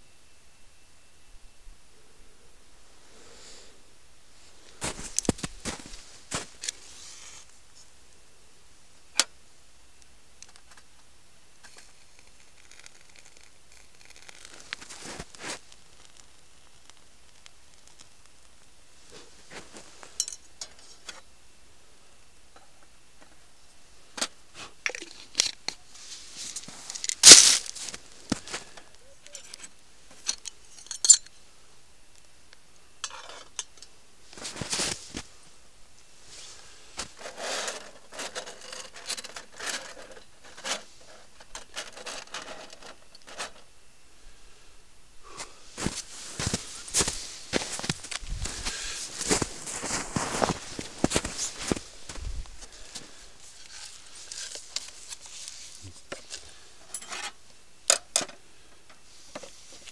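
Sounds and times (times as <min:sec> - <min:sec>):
packaging tearing or crumpling: 0:26.8 - 0:28.0
scraping and rubbing: 0:36.2 - 0:43.6, 0:45.7 - 0:56.4.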